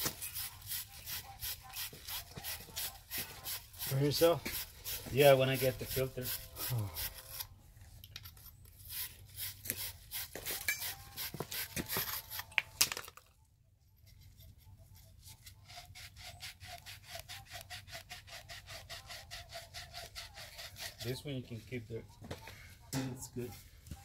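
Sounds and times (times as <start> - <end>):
pipe scrubbed with abrasive cloth: 14.0 - 21.8.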